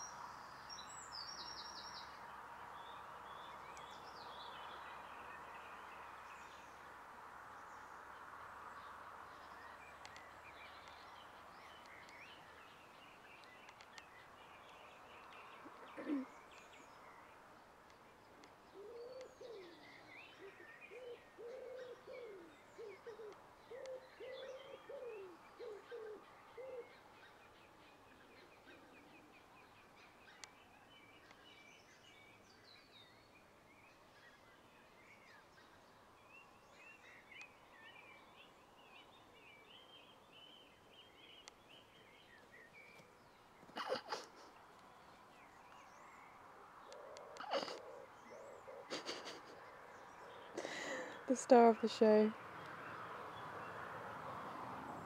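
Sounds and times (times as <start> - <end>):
birdsong with high chirps: 0.0 - 55.0
dove cooing: 15.6 - 16.4, 18.7 - 27.0, 46.8 - 51.0
falling bird call: 43.7 - 44.6, 47.0 - 49.6.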